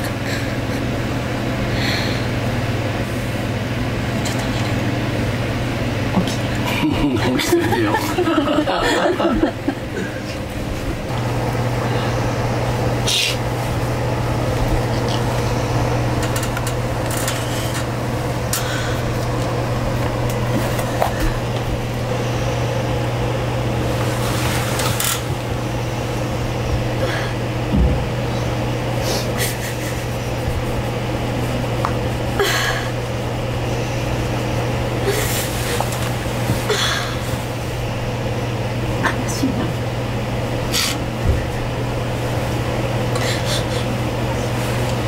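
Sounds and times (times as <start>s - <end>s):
low room hum: 0.0s - 45.0s
bedding rustling: 10.3s - 27.0s, 33.1s - 38.4s
low thump: 27.7s - 28.1s.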